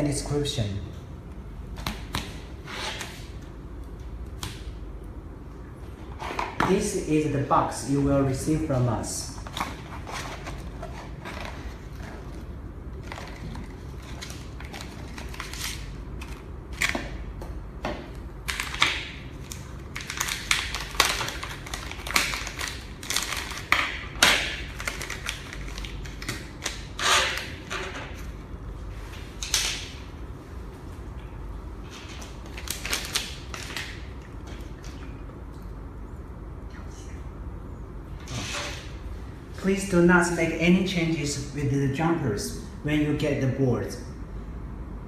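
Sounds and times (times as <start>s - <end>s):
plastic bag crackling: 19.3s - 26.2s.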